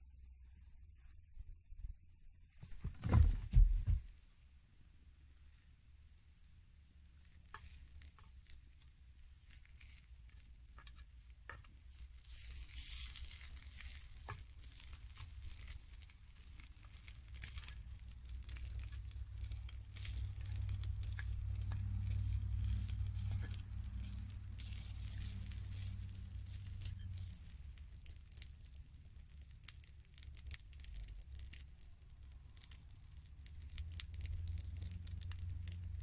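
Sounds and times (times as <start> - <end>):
meat sizzling in a skillet: 7.1 - 36.0
tongs clicking and crackles: 7.2 - 36.0
low rumble: 17.0 - 29.2.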